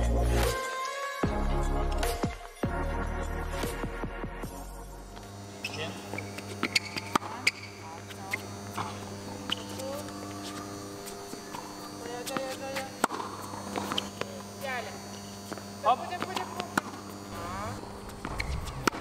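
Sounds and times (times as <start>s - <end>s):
steady electrical hum: 3.4s - 19.0s
balls bouncing on hard court: 5.6s - 19.0s
tennis balls struck with rackets: 5.8s - 19.0s.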